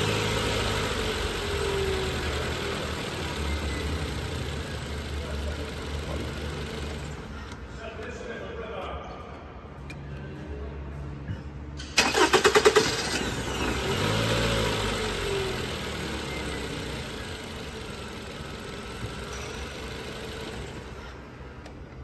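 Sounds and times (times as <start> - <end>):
car engine revving and idling: 0.0 - 7.4, 12.1 - 21.2.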